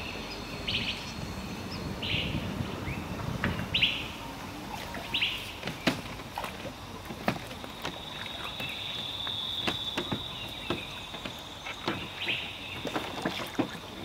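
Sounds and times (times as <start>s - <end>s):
bird chirping: 0.0s - 6.0s, 7.7s - 14.0s.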